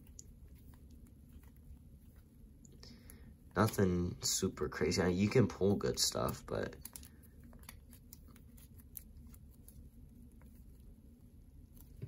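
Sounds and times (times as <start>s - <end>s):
low room hum: 0.0s - 12.0s
trading cards in sleeves clicking: 5.9s - 9.8s.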